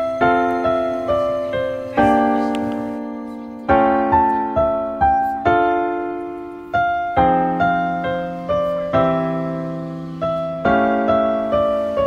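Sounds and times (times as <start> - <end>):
piano chords: 0.0 - 12.0.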